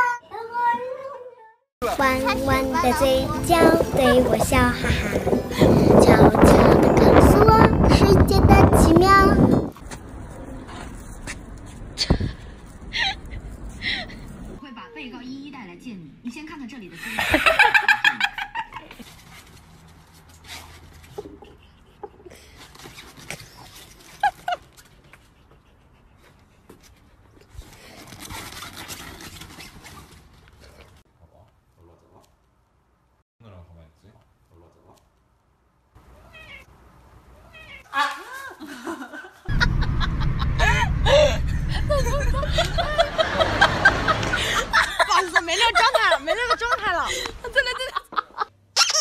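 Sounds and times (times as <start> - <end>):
steady low rumble: 1.8 - 14.6, 39.5 - 45.4.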